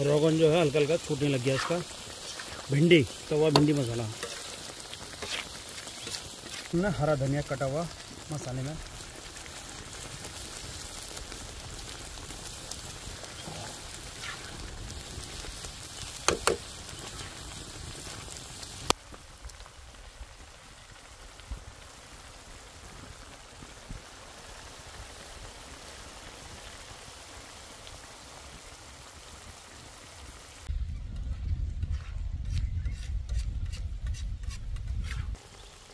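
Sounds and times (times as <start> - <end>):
paste bubbling and sputtering: 1.2 - 15.4
sharp pops: 3.4 - 4.4, 16.2 - 17.2.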